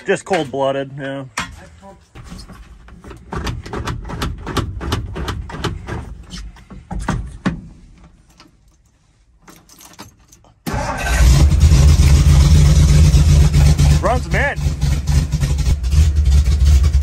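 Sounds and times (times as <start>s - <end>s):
truck engine starting and running: 2.2s - 6.7s, 9.9s - 17.0s
clicks and rattles: 8.0s - 10.7s
keys jingling in ignition: 8.6s - 10.6s.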